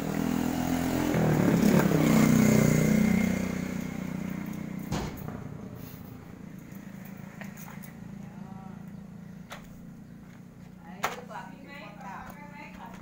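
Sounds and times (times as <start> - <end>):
vehicle engine passing by: 0.0 - 10.8
sharp knock: 4.9 - 5.8.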